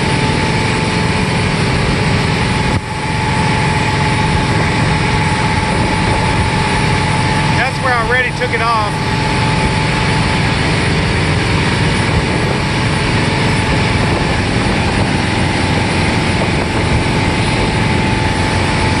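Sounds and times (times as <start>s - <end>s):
machine engine running loudly: 0.0s - 19.0s.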